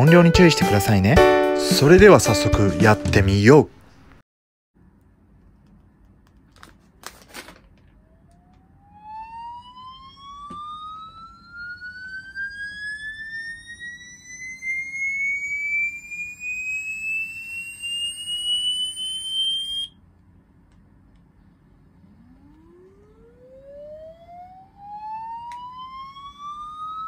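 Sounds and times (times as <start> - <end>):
rising whistle-like test tone: 8.8 - 20.0, 23.7 - 27.0.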